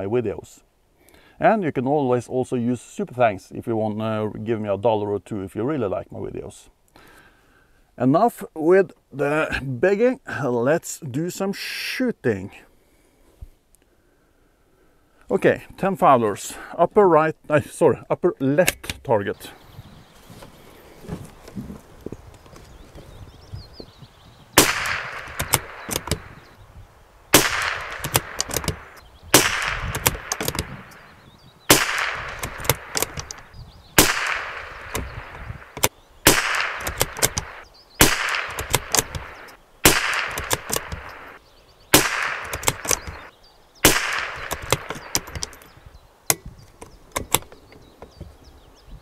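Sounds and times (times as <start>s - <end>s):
rifle shots with echo: 24.6s - 26.1s, 27.3s - 31.0s, 31.7s - 33.4s, 34.0s - 45.6s
rifle bolt clicks: 24.6s - 26.3s, 27.4s - 31.0s, 31.7s - 33.4s, 34.0s - 41.4s, 42.0s - 45.7s, 46.3s - 47.6s.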